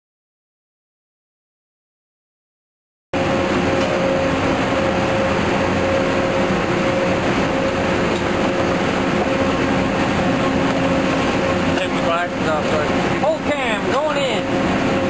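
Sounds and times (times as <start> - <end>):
drilling rig engine drone: 3.2 - 15.0.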